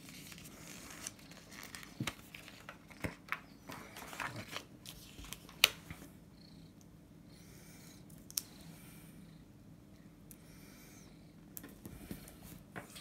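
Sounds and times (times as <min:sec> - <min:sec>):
paper rustling and crinkling: 0:00.0 - 0:06.1.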